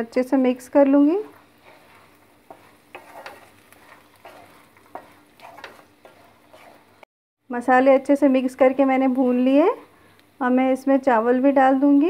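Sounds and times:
faint sizzle: 0:00.0 - 0:12.0
wooden spatula scraping metal pan: 0:00.8 - 0:07.0.

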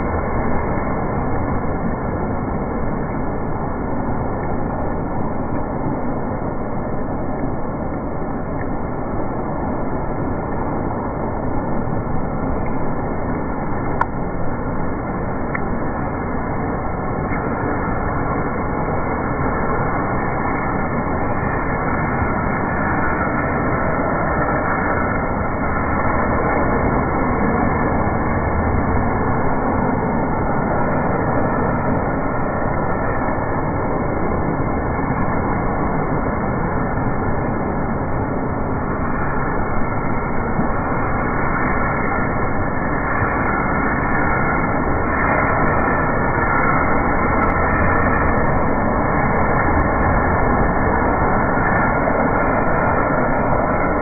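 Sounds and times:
heavy rain on pavement: 0:00.0 - 0:54.0
rainwater rushing along curb: 0:00.0 - 0:54.0.

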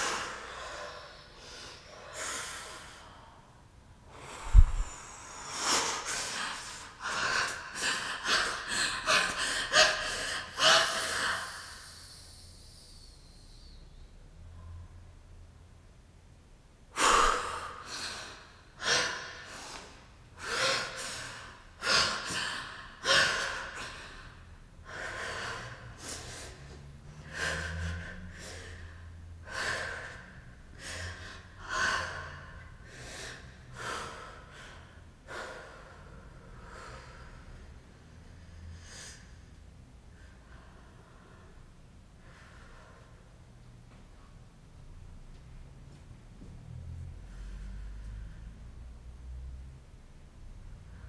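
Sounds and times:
woman gasping and breathing hard: 0:04.1 - 0:13.0, 0:17.0 - 0:26.6.

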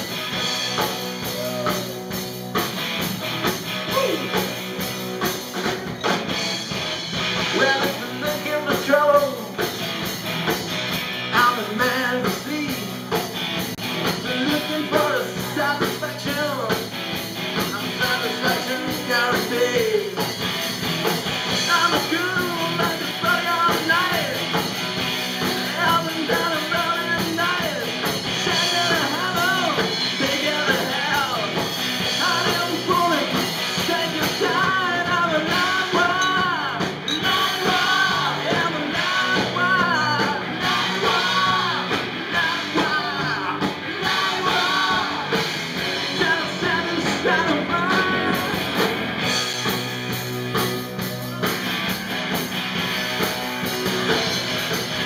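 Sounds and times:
live rock band playing: 0:00.0 - 0:55.0
lead singer: 0:07.4 - 0:09.8, 0:11.2 - 0:13.3, 0:13.9 - 0:16.9, 0:17.6 - 0:20.4, 0:21.1 - 0:49.5.

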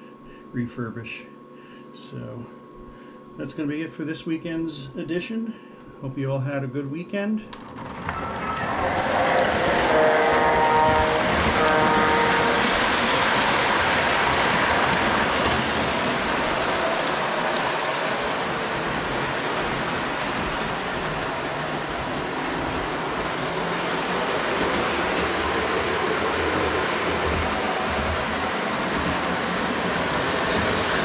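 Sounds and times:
model train wheels and motor rumbling: 0:07.5 - 0:31.0
train horn: 0:08.4 - 0:12.9.

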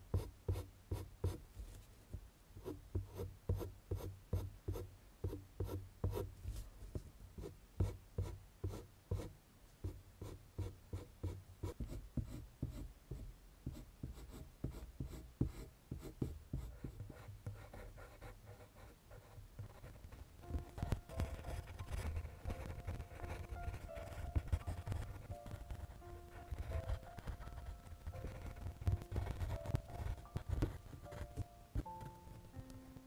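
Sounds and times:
pencil scratching on paper: 0:13.7 - 0:20.2, 0:20.8 - 0:31.4.

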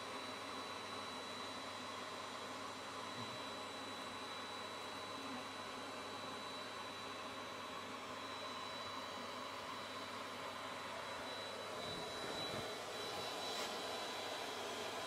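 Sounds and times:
vacuum whoosh with high whine: 0:10.5 - 0:15.0.

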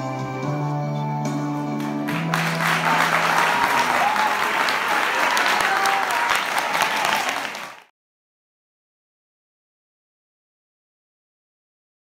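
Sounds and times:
audience applauding: 0:01.8 - 0:07.9.

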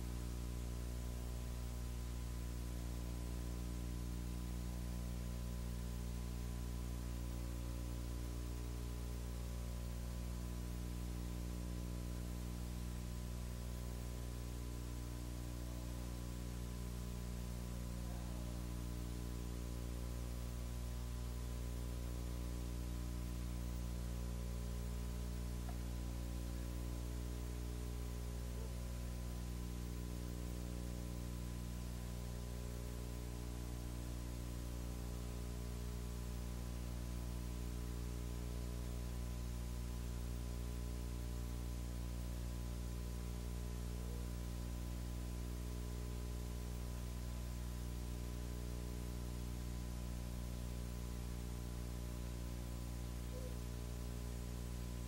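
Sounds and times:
electrical hum: 0:00.0 - 0:55.0
faint constant tone: 0:00.0 - 0:55.0
tape hiss: 0:00.0 - 0:55.0.

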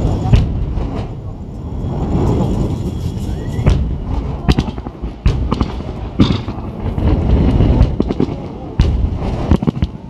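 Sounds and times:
deep rumble: 0:00.0 - 0:10.0
fireworks bangs: 0:00.0 - 0:10.0.

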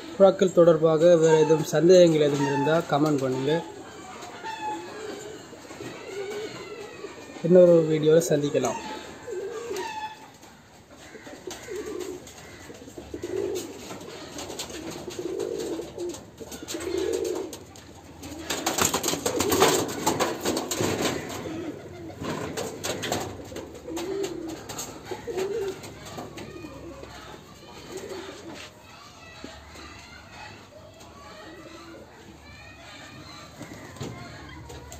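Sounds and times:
pigeons cooing: 0:00.0 - 0:34.9
wings flapping: 0:11.0 - 0:28.6, 0:33.6 - 0:34.9.

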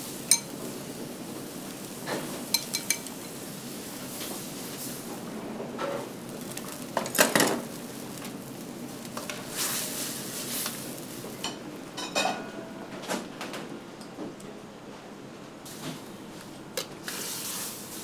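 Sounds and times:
steady hiss: 0:00.0 - 0:05.4, 0:06.0 - 0:11.9, 0:17.0 - 0:18.0.

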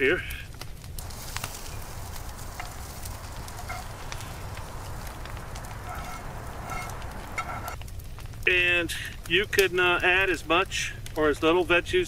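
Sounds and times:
campfire coals crackling: 0:00.0 - 0:12.0
low rumble: 0:01.0 - 0:07.8.

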